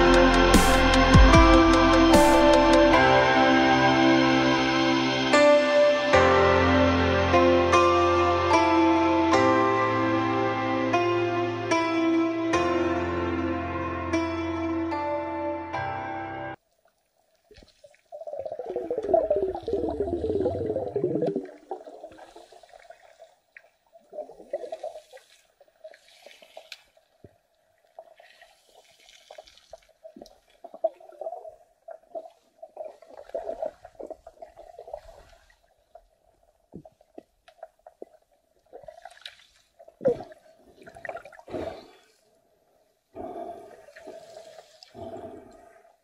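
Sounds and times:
water splashes: 16.7 - 42.3, 43.5 - 46.0
water gurgling and bubbling: 18.1 - 23.2, 40.0 - 41.9.

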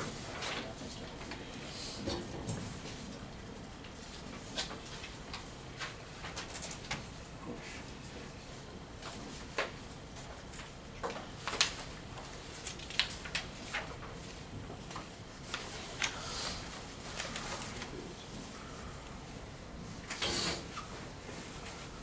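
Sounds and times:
room tone: 0.0 - 22.0
pens tapping and scratching on paper: 9.0 - 17.9.

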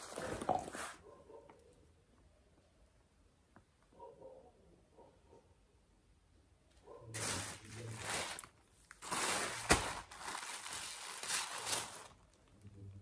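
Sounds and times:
bags rustling and crinkling: 0.0 - 1.0, 7.1 - 12.6.

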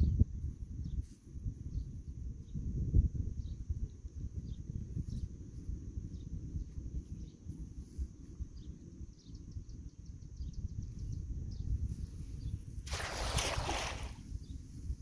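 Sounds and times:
net splashing into water: 12.8 - 14.2.

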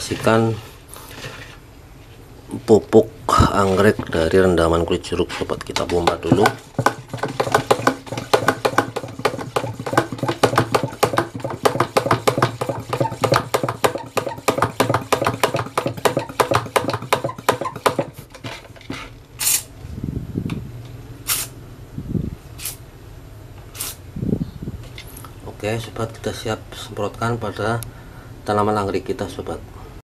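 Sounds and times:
hand pump plunger pumping: 5.8 - 19.6.

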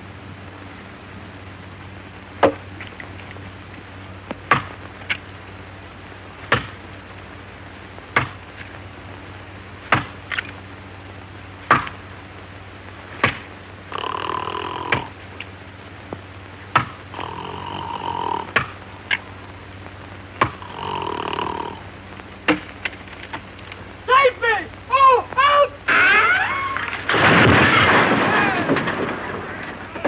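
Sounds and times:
steady low hum: 0.0 - 30.0
axe chopping into tree trunk: 4.5 - 4.7, 6.5 - 6.8.

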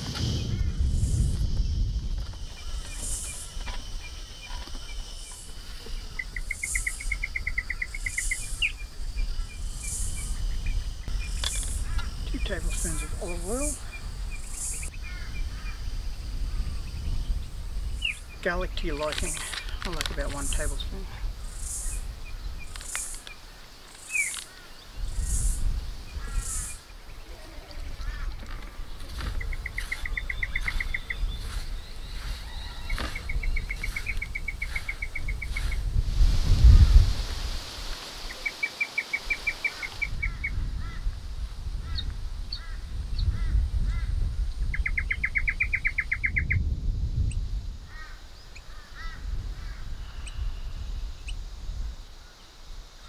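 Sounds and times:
low rumble: 0.0 - 3.6
insects chirping: 0.0 - 53.0
bird trilling: 2.6 - 10.5, 24.0 - 25.5, 26.2 - 35.8.

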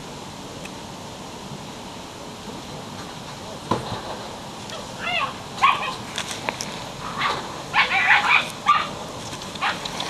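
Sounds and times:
puppy yelping and whining: 4.7 - 6.0, 7.2 - 9.0.

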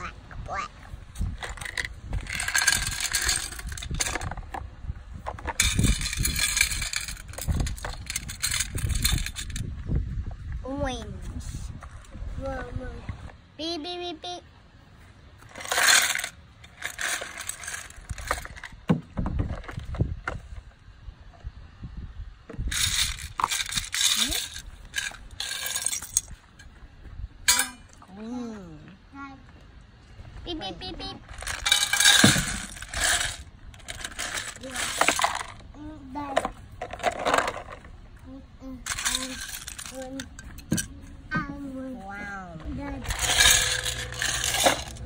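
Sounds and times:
pieces rattling as hand stirs: 1.4 - 4.3, 5.6 - 9.6, 15.5 - 18.7, 22.7 - 26.3, 31.3 - 35.6, 38.8 - 40.9, 43.0 - 45.0
small hard pieces clattering into tin: 1.4 - 4.4, 5.4 - 9.6, 15.5 - 18.8, 22.7 - 26.3, 31.3 - 35.6, 38.9 - 40.9, 43.0 - 45.0.

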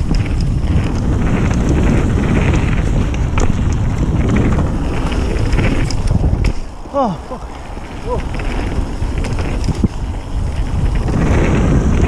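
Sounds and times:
bike clicks and rattles: 0.0 - 12.0
bike tyres rolling over dirt: 0.0 - 12.0
wind buffeting microphone: 0.0 - 12.0.

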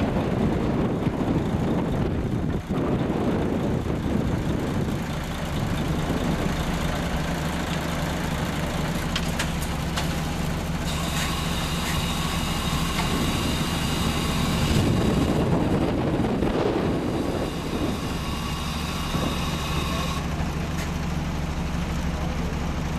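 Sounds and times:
truck diesel engine running: 0.0 - 22.9
thin high whine: 10.8 - 15.5, 16.8 - 20.3.

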